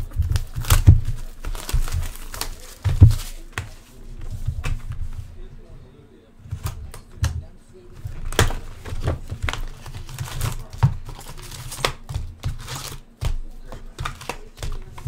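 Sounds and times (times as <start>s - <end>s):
card packs clicking together: 0.0s - 3.3s, 8.1s - 15.0s
cardboard box tearing: 0.0s - 3.4s
foil wrappers crinkling: 0.0s - 4.9s, 7.9s - 15.0s.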